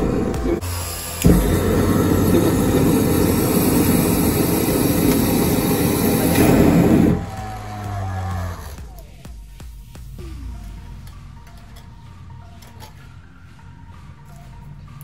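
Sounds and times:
jet engine rough rumble: 0.0 - 7.4.

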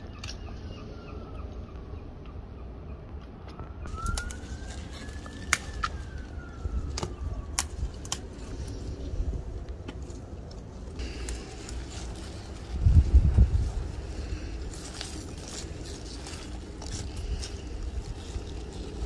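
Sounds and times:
distant siren wailing: 3.6 - 9.0
peppers snapping off plant: 3.9 - 6.0, 6.9 - 8.3
leaves rustling: 3.9 - 19.0.

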